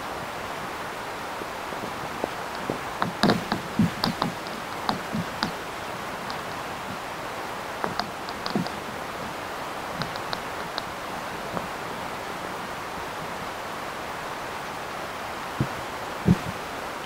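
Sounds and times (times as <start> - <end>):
steady hiss: 0.0 - 17.0
faint high ticks: 2.2 - 5.6, 6.2 - 7.0, 7.8 - 8.9, 10.0 - 11.7
short dull knocks: 2.6 - 5.6.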